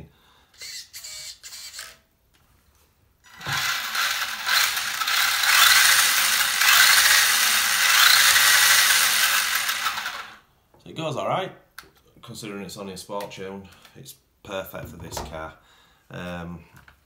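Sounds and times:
toy car gear whir: 0.6 - 2.1, 3.3 - 10.4.

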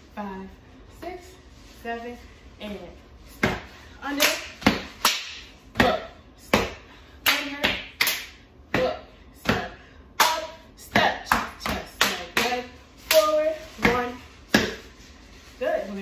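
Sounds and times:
slaps on chest and legs: 3.4 - 14.8
hand claps: 4.2 - 5.5, 7.2 - 8.4.

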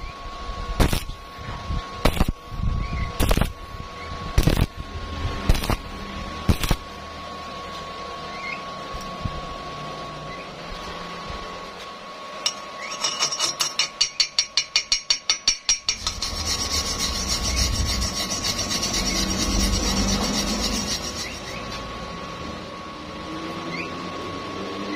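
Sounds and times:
wire brush scrubbing steel: 12.5 - 21.9.

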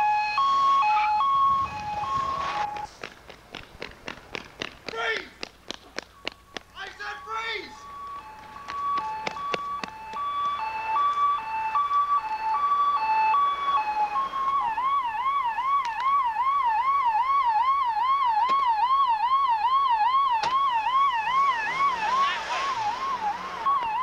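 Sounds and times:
electronic siren: 0.0 - 2.9, 6.1 - 24.0
car passing close: 20.5 - 24.0.

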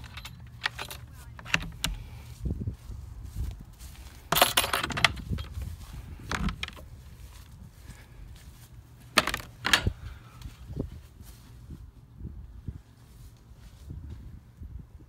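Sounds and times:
metal door latch clattering: 0.0 - 2.0, 4.3 - 5.5, 9.2 - 10.0
sharp latch clicks: 0.0 - 2.1, 4.3 - 5.5, 9.2 - 10.0.

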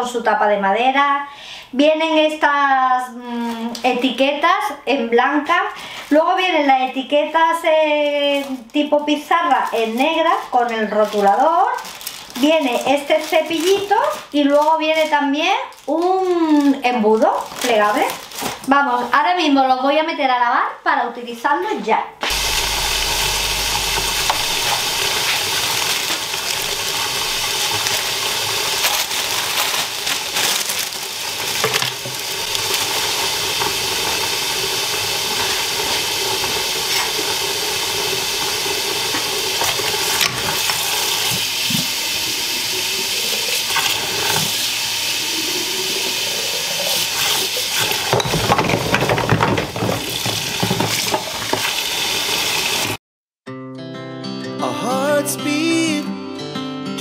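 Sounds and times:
water running from tap: 22.3 - 53.0.

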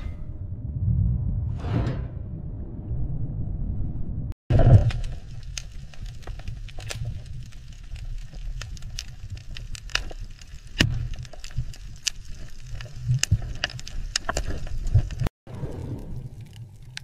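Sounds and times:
low rumble of water: 0.2 - 13.8, 14.7 - 17.0
sharp crackling clicks underwater: 4.5 - 17.0.

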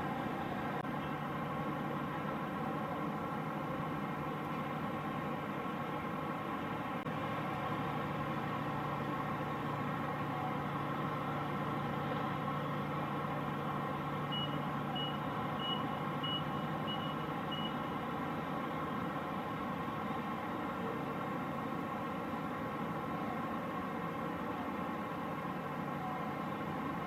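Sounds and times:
vehicle engine humming: 0.0 - 27.0
reversing alarm beeps: 14.3 - 18.0.

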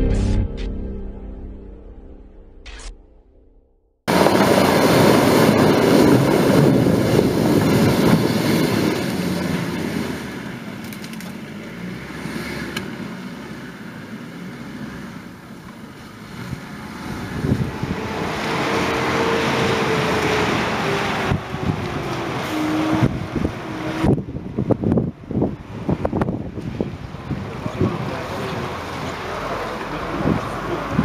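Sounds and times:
car engine working hard in mud: 4.1 - 22.1, 23.0 - 31.0
vehicle engine with whining tone: 4.1 - 31.0
wind on microphone: 16.5 - 28.2.

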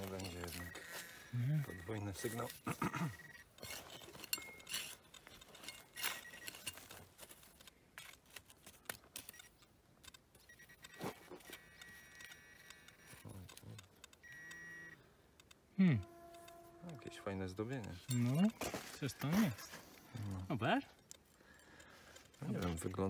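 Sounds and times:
metal detector high tone: 0.0 - 5.0, 5.6 - 6.9, 10.4 - 15.0, 15.8 - 20.8
digging tools scraping soil: 0.0 - 9.0, 16.6 - 21.3.

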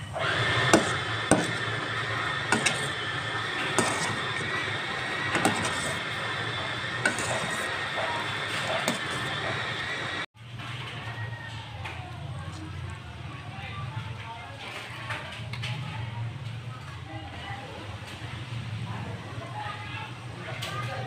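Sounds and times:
spatula scraping pan: 0.0 - 10.3
mixture sizzling in frying pan: 0.3 - 10.3.

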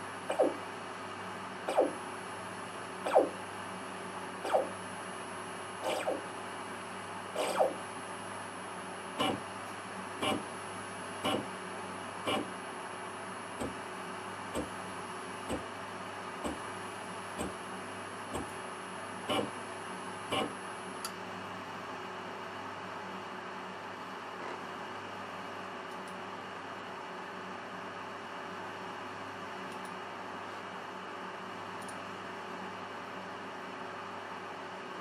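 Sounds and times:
steady low hum: 0.0 - 22.4
servo motor whining: 5.8 - 6.2, 7.4 - 7.8.

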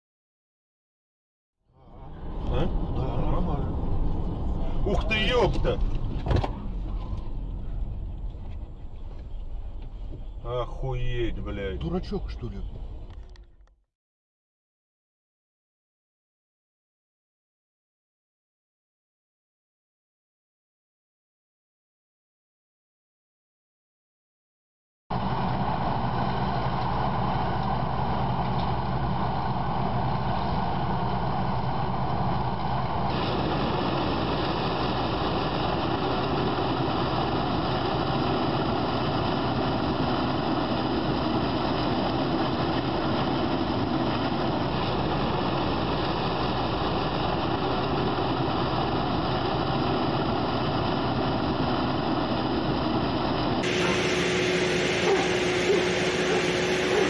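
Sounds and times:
tractor diesel engines under load: 1.8 - 13.7, 25.1 - 57.0.

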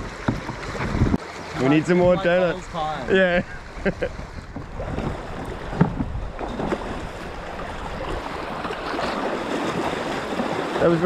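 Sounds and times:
rushing river water: 0.0 - 11.0
water splashes: 0.0 - 11.0
knocks on raft: 4.2 - 7.0.

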